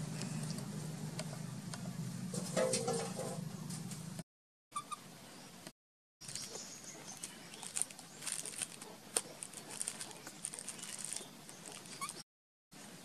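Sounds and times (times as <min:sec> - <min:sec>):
plastic bag crinkling: 0:06.2 - 0:12.2.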